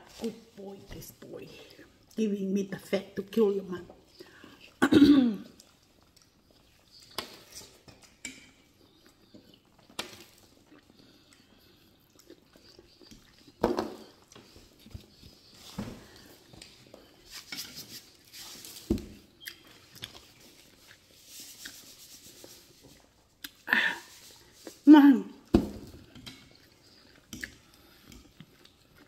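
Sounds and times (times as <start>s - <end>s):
chewing: 5.5s - 17.4s, 19.3s - 23.6s, 26.0s - 29.0s.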